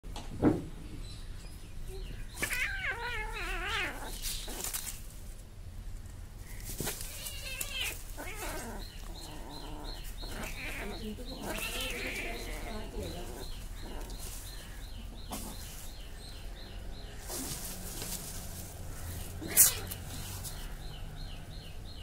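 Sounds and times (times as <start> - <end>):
kittens yowling and crying: 2.0 - 4.9, 6.8 - 14.7, 19.0 - 20.8.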